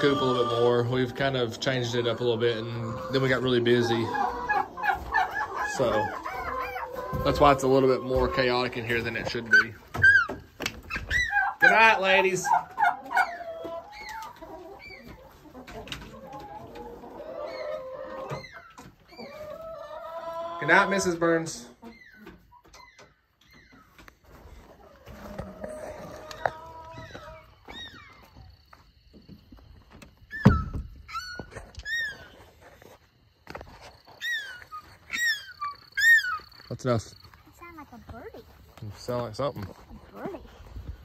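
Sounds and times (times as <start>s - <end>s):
hens clucking: 0.0s - 41.0s.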